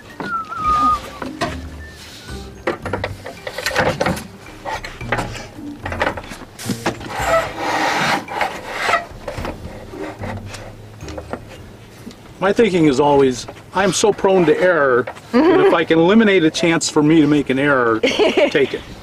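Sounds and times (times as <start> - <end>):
panel scraping on metal roof: 2.9 - 10.8.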